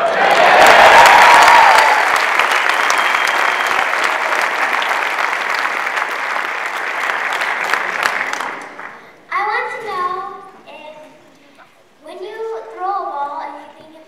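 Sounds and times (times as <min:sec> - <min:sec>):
audience cheering: 0:00.0 - 0:09.0
large audience applauding: 0:00.0 - 0:09.1.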